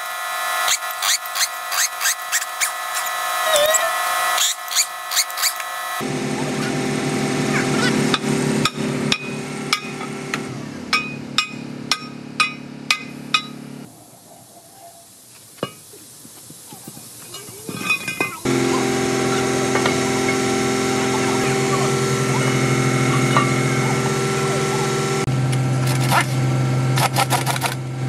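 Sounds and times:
steady droning hum: 0.0 - 27.0
hammer striking steel: 8.0 - 13.7, 17.9 - 20.4, 23.0 - 24.0.

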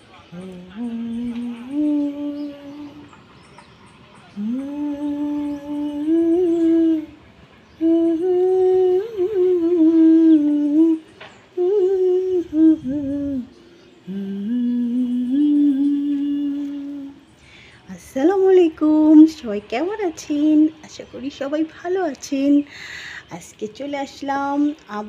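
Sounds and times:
woman humming: 0.3 - 3.2, 4.4 - 7.2, 7.8 - 20.7
breaths: 17.4 - 17.9, 22.6 - 23.3.

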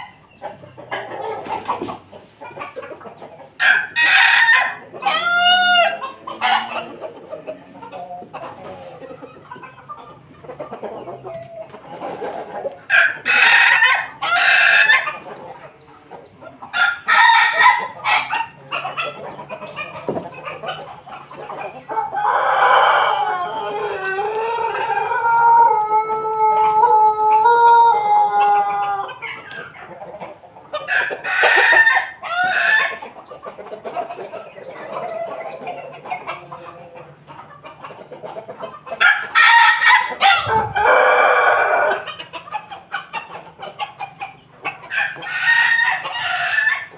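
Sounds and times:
roosters crowing: 0.0 - 7.0, 11.0 - 15.4, 16.6 - 30.0, 30.7 - 33.3, 38.8 - 44.1, 44.7 - 46.9
hens clucking: 0.0 - 46.9.

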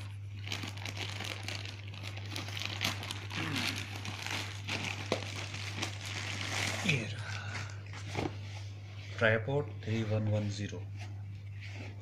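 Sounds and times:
plastic bag tearing: 0.0 - 7.2
plastic mailer bag crinkling: 0.0 - 7.9
steady low hum: 0.0 - 12.0.

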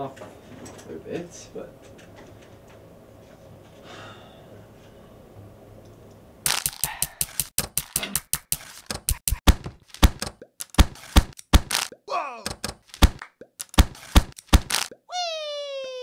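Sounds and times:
percussive beat of clicks and thuds: 6.5 - 15.0
stapler slams: 8.9 - 11.9, 12.5 - 14.9.

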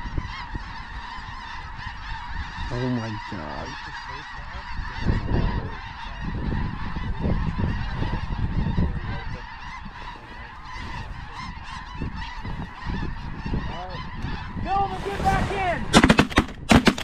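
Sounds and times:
geese honking and yelping: 0.0 - 17.0
low rumble: 14.7 - 16.5.

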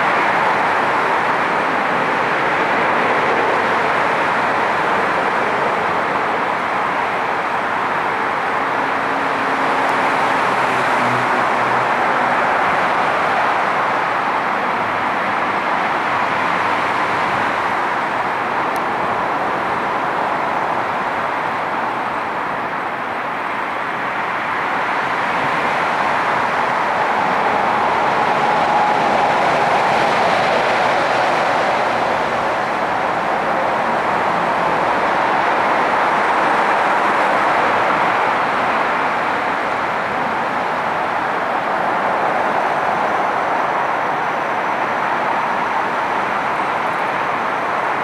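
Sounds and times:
jet airliner climbing: 25.2 - 47.5.

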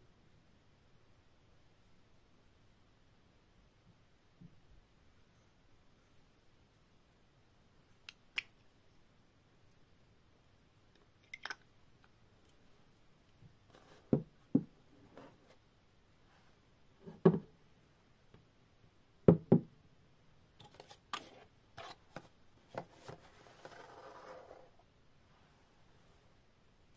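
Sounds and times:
bottle and boxes knocking on table: 19.3 - 19.7.

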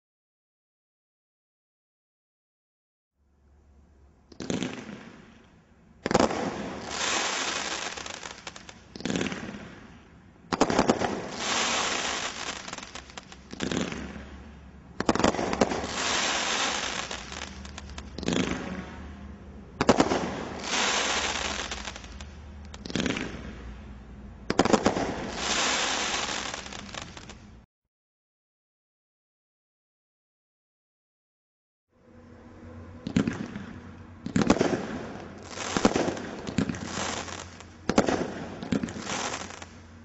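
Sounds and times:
firework shots popping: 4.3 - 5.2, 6.0 - 9.9, 10.5 - 14.4, 15.0 - 19.0, 19.8 - 23.6, 24.5 - 27.4, 33.1 - 39.8
firework stars crackling: 6.0 - 23.7, 24.5 - 27.6, 34.2 - 40.0.

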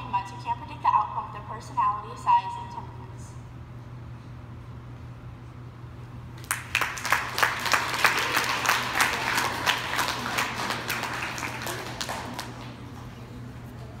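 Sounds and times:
audience applauding: 6.4 - 13.2.

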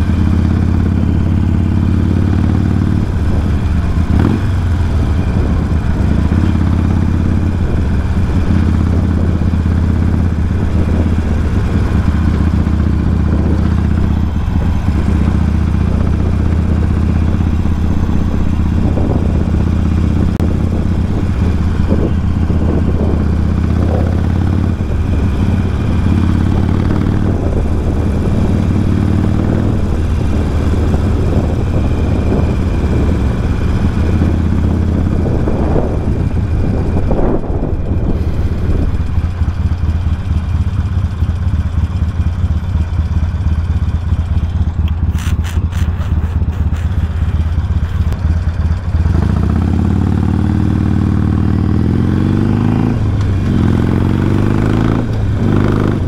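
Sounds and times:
motorcycle engine revving: 0.0 - 56.0
sharp clicks: 44.4 - 48.2.

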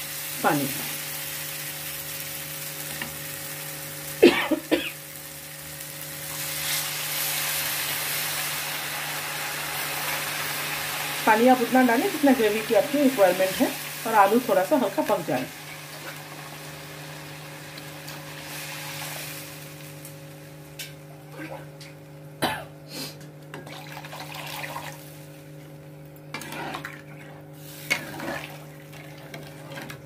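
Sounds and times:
hot gravy hissing: 5.1 - 19.8
spatula scraping a wok: 26.3 - 28.7.

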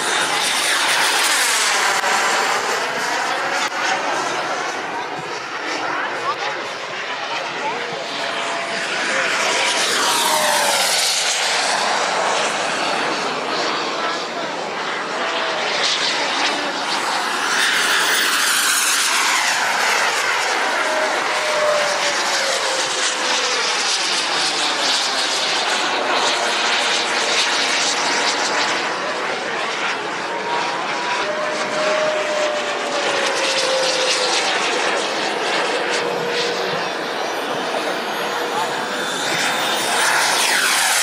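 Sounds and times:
model jet turbine whine: 0.0 - 41.0.

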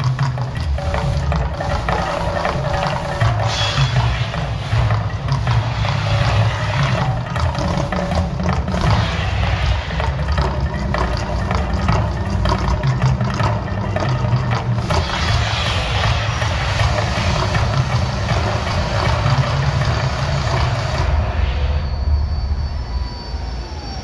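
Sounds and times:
water jets and flames rushing: 0.0 - 22.2
deep rumble: 0.0 - 24.0.

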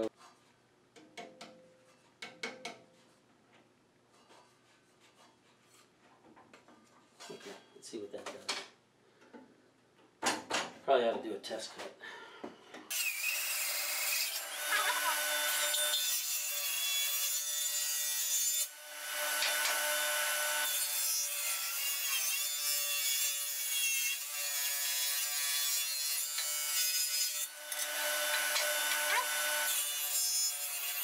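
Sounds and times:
table saw cutting wood: 12.9 - 31.0.

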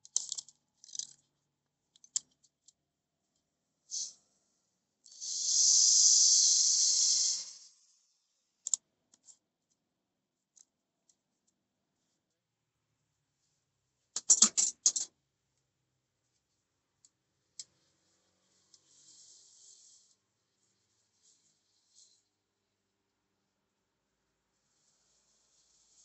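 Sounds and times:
tools being handled clicks: 0.0 - 1.3.

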